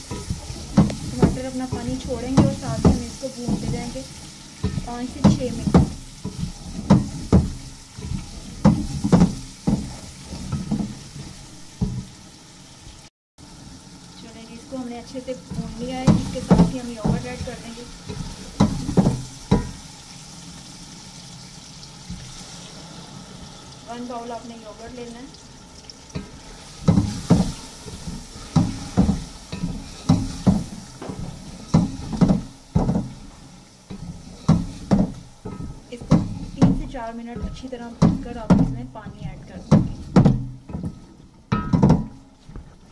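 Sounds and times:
wooden spatula scraping a pot: 0.0s - 12.2s, 15.4s - 19.8s, 26.2s - 42.9s
frying in oil sizzling: 0.0s - 42.9s
spatula knocking against pot: 0.1s - 4.0s, 4.6s - 11.0s, 16.0s - 17.6s, 18.6s - 19.8s, 28.6s - 33.2s, 34.4s - 42.2s.

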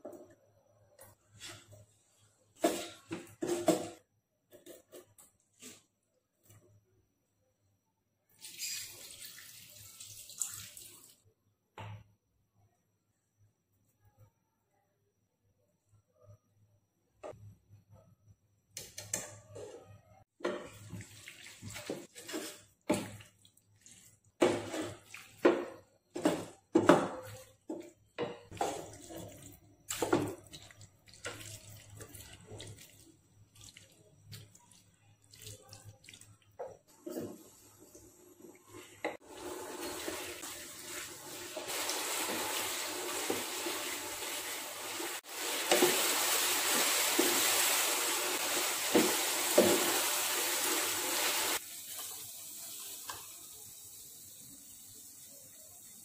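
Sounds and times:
wooden spatula scraping a pan: 1.4s - 5.9s, 19.6s - 23.2s, 23.9s - 30.6s, 36.7s - 37.6s.

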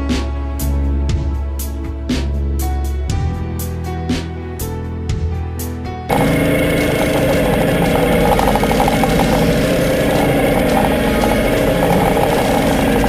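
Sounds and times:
outboard motor running: 6.1s - 13.0s.

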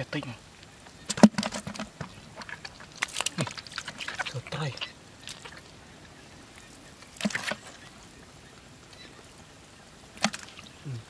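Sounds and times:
wet slap of fish: 3.0s - 4.3s, 10.2s - 10.6s.

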